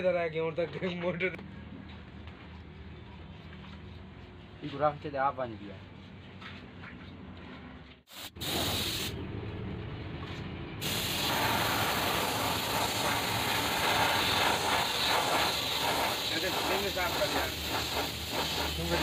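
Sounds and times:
paint spray gun hissing: 8.1 - 9.2, 10.8 - 19.0.

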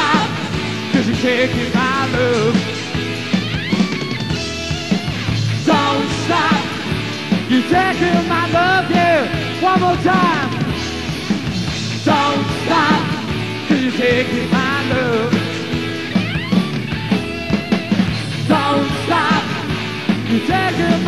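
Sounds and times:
person singing: 0.0 - 2.8, 5.6 - 10.7, 12.0 - 15.8, 18.5 - 21.0
live rock band playing: 0.0 - 21.0.

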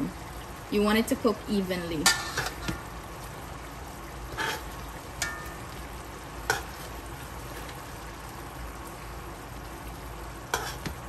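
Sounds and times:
chicken sizzling in a pot: 0.0 - 11.0
metal tongs clinking on pot: 5.2 - 5.6.

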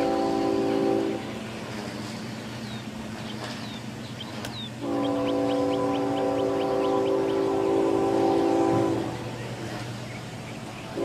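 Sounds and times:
locomotive horn: 0.0 - 1.9, 4.8 - 10.0
songbirds chirping: 0.0 - 11.0.

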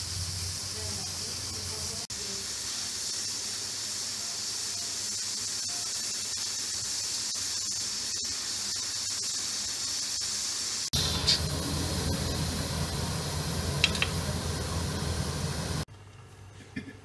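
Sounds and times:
pressure cooker steam hissing: 0.0 - 15.9.

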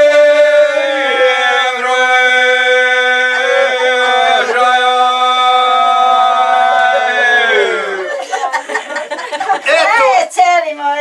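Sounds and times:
men singing unaccompanied: 0.0 - 8.1.

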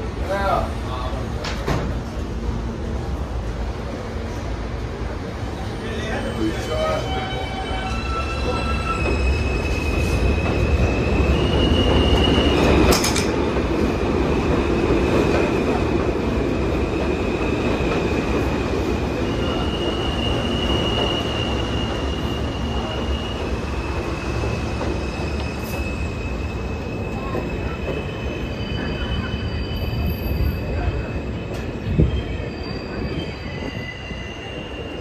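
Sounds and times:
train wheels rumbling on rails: 0.0 - 35.0
high wheel squeal: 19.3 - 35.0.

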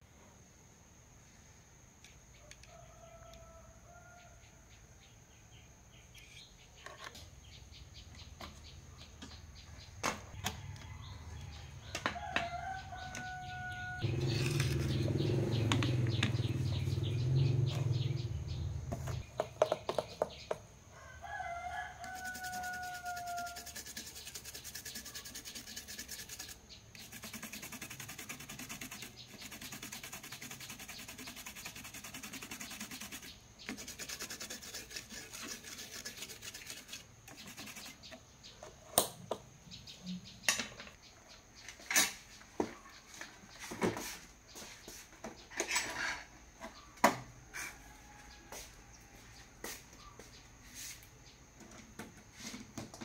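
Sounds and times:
rooster crowing: 2.6 - 4.7, 10.4 - 15.0, 20.9 - 23.8, 47.5 - 49.8
toothbrush scrubbing circuit board: 22.1 - 38.0.

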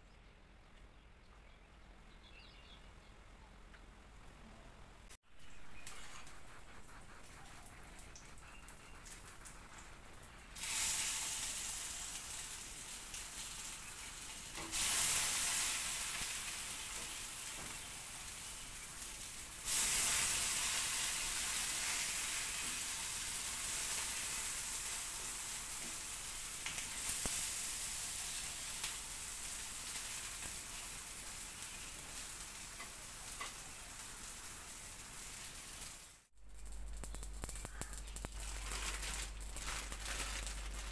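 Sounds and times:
burger patties sizzling in pan: 9.0 - 40.9.

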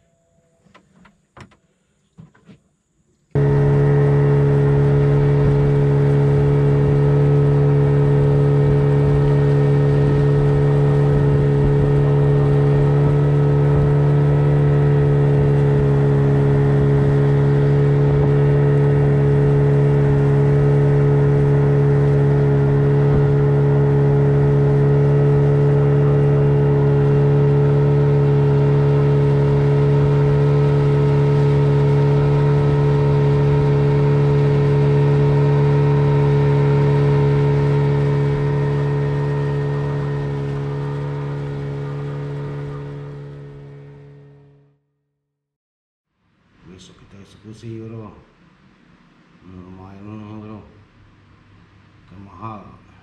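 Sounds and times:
boat engine running: 3.4 - 44.8.

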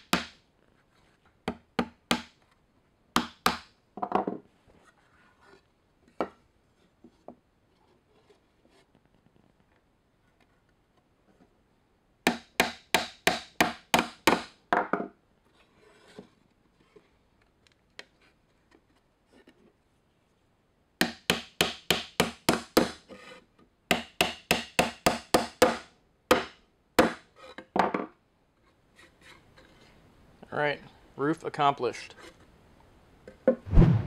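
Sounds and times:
hammer driving nails into wood: 1.5 - 2.4, 3.2 - 3.7, 12.3 - 14.6, 21.0 - 23.0, 23.9 - 27.2.

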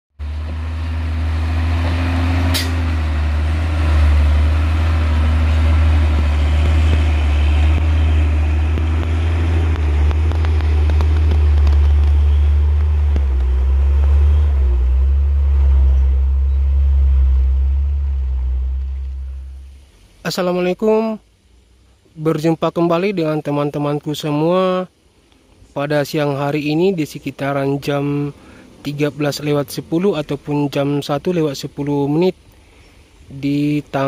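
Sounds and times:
diesel truck engines droning: 0.2 - 34.0.

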